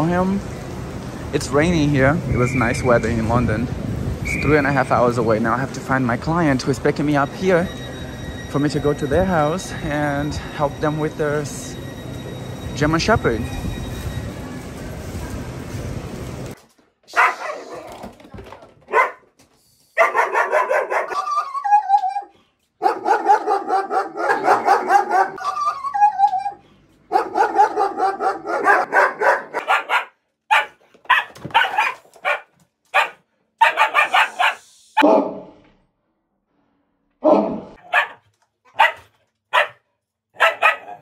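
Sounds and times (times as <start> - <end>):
dog barking: 17.1 - 17.9, 18.9 - 19.3, 20.0 - 35.5, 37.2 - 39.8, 40.4 - 41.0.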